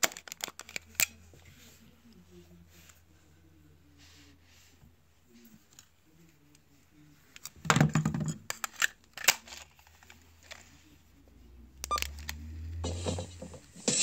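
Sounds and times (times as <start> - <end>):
faint tape playback: 0.0 - 14.0.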